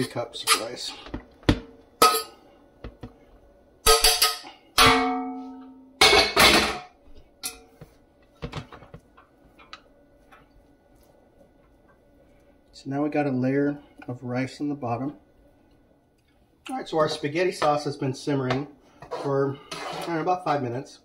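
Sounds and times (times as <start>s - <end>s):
metal spoon clanking on pans: 0.0s - 0.9s, 2.0s - 2.4s, 3.8s - 7.8s.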